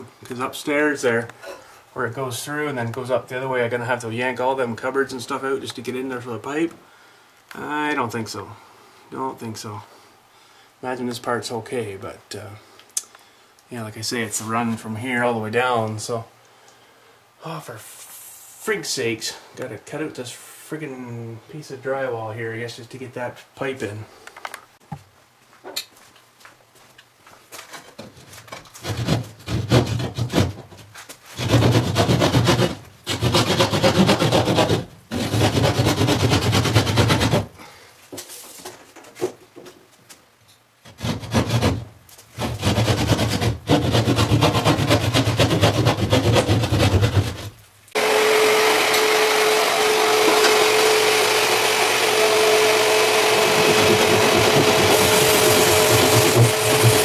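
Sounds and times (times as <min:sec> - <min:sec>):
saw cutting drywall: 0:28.8 - 0:30.6, 0:31.4 - 0:37.6, 0:40.8 - 0:57.0.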